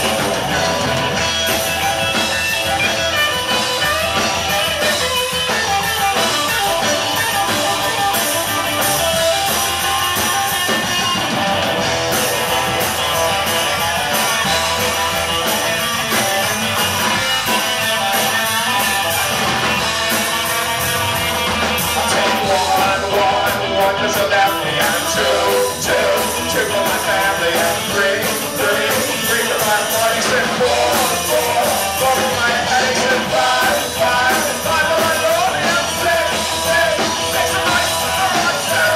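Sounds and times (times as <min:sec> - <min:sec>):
live rock band playing loud: 0:00.0 - 0:38.9
person singing: 0:21.9 - 0:38.9.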